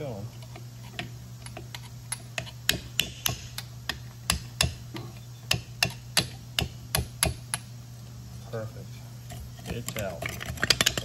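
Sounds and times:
hammer tapping metal punch: 0:02.4 - 0:07.7.

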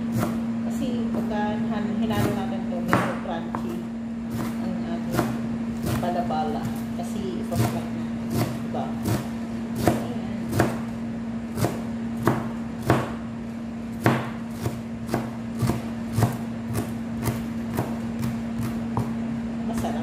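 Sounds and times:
steady low hum: 0:00.0 - 0:20.0
knife chopping on plastic board: 0:00.1 - 0:00.4, 0:02.1 - 0:06.8, 0:07.6 - 0:10.9, 0:11.5 - 0:13.2, 0:14.0 - 0:19.2.

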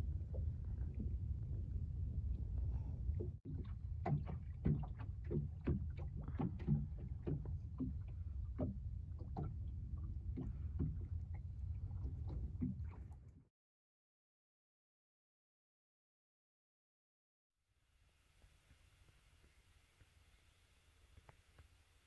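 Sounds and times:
motorboat engine rumble: 0:00.0 - 0:13.4
waves slapping against hull: 0:00.0 - 0:13.4.

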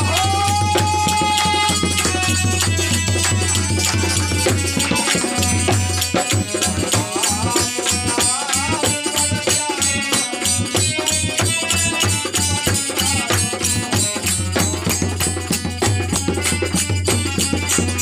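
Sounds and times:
person singing: 0:00.0 - 0:05.6, 0:06.2 - 0:15.0
dholak hand drum: 0:00.0 - 0:18.0
harmonium chords: 0:00.0 - 0:18.0
hand-clapping: 0:00.8 - 0:06.4.

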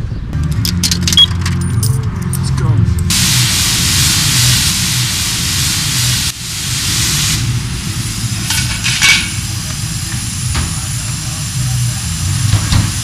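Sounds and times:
pressure washer spraying water: 0:03.1 - 0:13.0.

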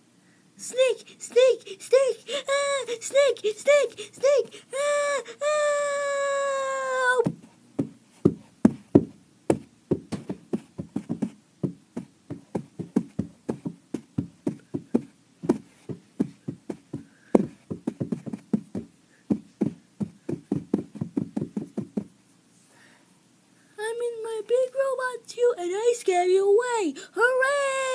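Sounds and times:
rapid dull knocks: 0:07.2 - 0:22.2.

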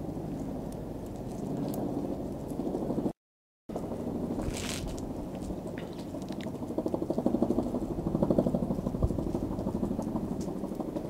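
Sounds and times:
engine running with fast pulsing: 0:03.7 - 0:11.0.

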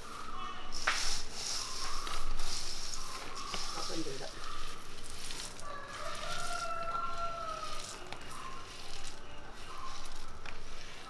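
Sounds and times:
rooster crowing: 0:04.4 - 0:09.1.

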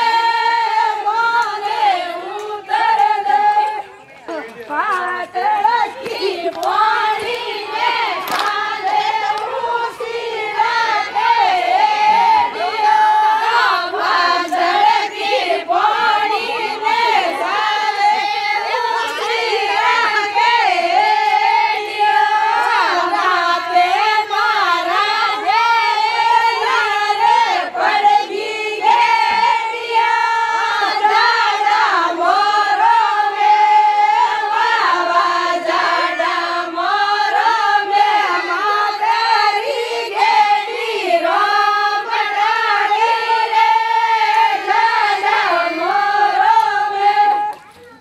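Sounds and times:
women singing folk song: 0:00.0 - 0:47.7
sharp handclaps: 0:08.2 - 0:08.6.

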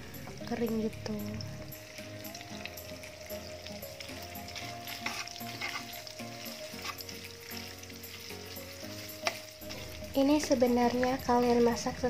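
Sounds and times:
oil sizzling in a wok: 0:00.0 - 0:12.0
metal spatula scraping pan: 0:03.7 - 0:11.6.

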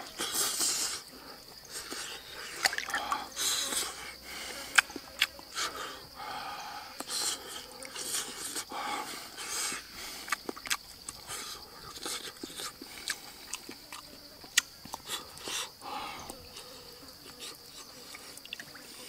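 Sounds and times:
breaths through the nose: 0:00.0 - 0:13.9, 0:14.9 - 0:19.0
lip smacks: 0:04.7 - 0:05.4, 0:07.0 - 0:08.6, 0:10.2 - 0:16.4
sharp mouth clicks: 0:04.7 - 0:05.4, 0:10.2 - 0:15.6
wet open-mouthed chewing: 0:10.1 - 0:18.8.

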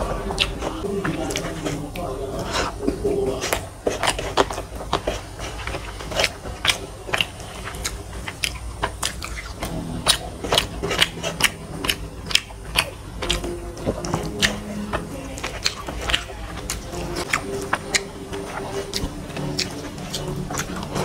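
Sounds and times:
fingers mashing food on metal plate: 0:00.0 - 0:21.0
wet chewing and lip smacks: 0:00.0 - 0:21.0.

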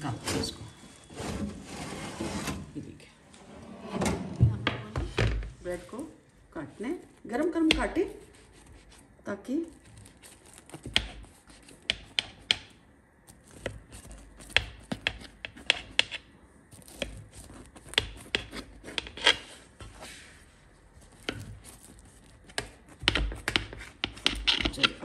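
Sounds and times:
knife cutting through bread crust: 0:07.6 - 0:25.0.

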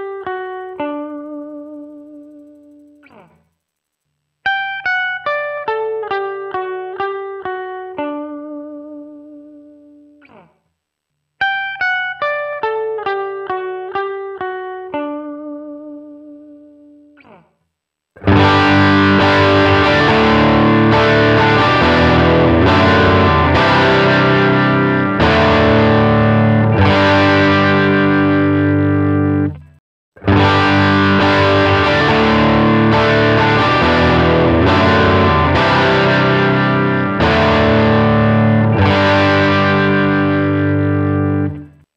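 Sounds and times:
distorted guitar chords strummed: 0:00.0 - 0:03.5, 0:04.4 - 0:10.5, 0:11.4 - 0:17.5, 0:18.2 - 0:41.9
clean electric guitar notes: 0:18.2 - 0:41.8.

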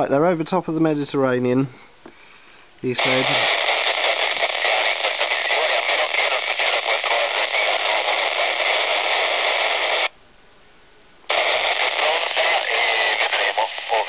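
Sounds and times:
radio receiver hiss: 0:02.8 - 0:10.1, 0:11.3 - 0:14.0.

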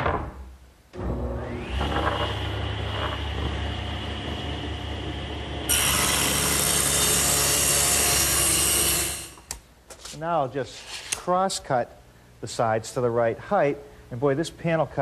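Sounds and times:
table saw cutting wood: 0:01.0 - 0:09.5.

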